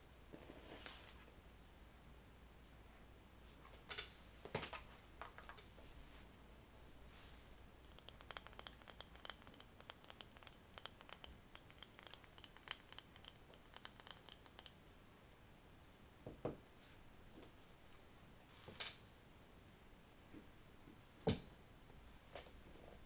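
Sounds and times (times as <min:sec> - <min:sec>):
fingers tapping on glass jar: 0:07.9 - 0:14.8.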